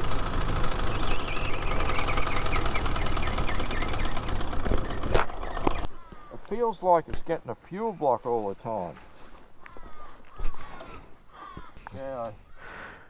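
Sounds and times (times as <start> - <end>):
motorcycle engine running: 0.0 - 6.3.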